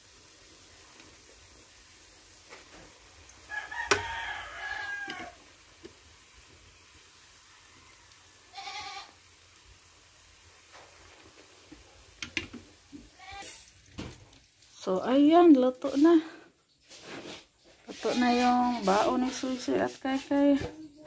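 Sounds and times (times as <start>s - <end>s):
rooster crowing: 3.5s - 5.4s, 7.4s - 9.0s.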